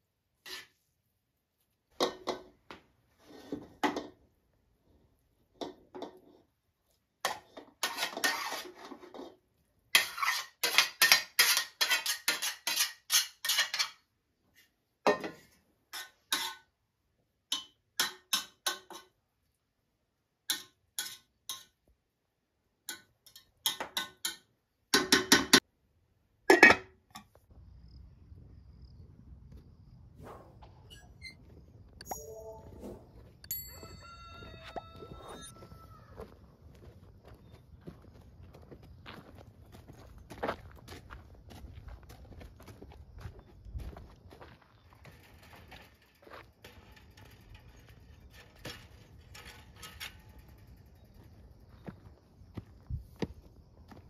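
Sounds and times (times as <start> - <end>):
cutlery clinking against pot: 15.9 - 16.7, 20.5 - 21.8, 22.9 - 24.5.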